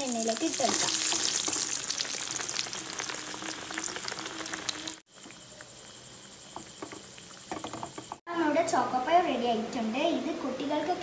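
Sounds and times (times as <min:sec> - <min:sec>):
patties deep-frying in oil: 0:00.0 - 0:08.3.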